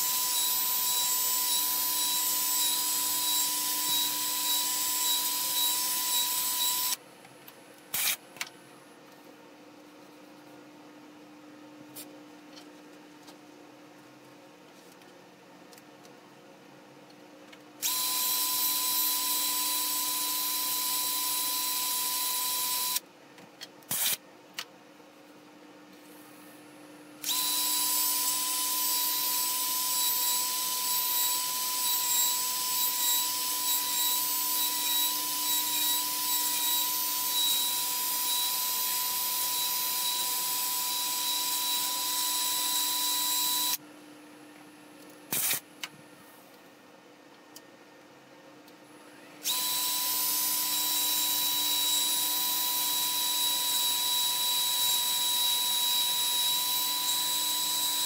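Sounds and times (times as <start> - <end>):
drill sanding wood whining: 0.0 - 7.0, 27.3 - 43.8.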